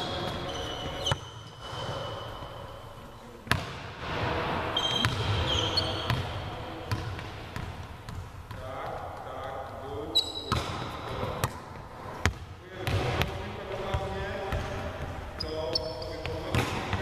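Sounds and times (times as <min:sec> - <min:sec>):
sneakers squeaking on court: 0:00.0 - 0:03.8, 0:04.7 - 0:08.6, 0:10.1 - 0:13.2, 0:13.9 - 0:17.0
volleyballs smacking: 0:10.5 - 0:13.2.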